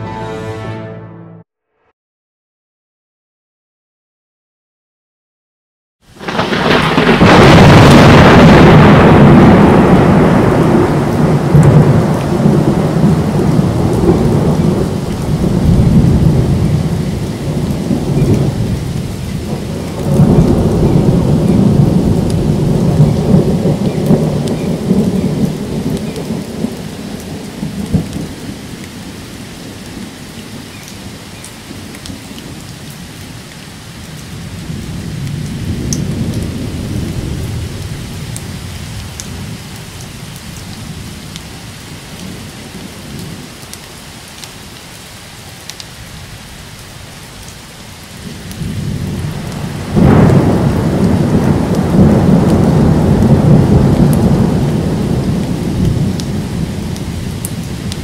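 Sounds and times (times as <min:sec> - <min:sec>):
steady rain: 0:06.0 - 0:58.0
thunder rumbling: 0:06.1 - 0:28.6, 0:34.4 - 0:39.6, 0:48.2 - 0:58.0.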